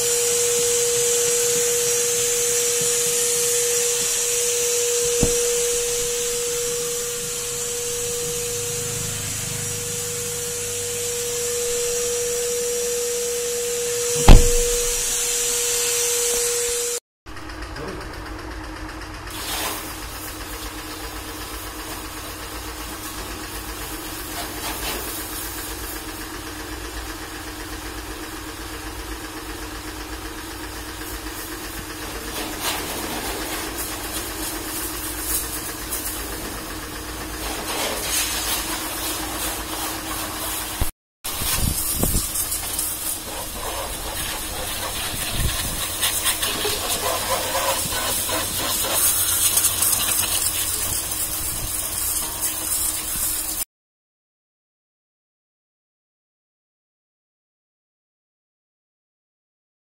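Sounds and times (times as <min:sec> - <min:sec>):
water jet hissing: 0:00.0 - 0:12.6, 0:14.0 - 0:16.5, 0:37.8 - 0:53.6
pressure washer motor humming: 0:00.0 - 0:17.0, 0:30.9 - 0:53.6.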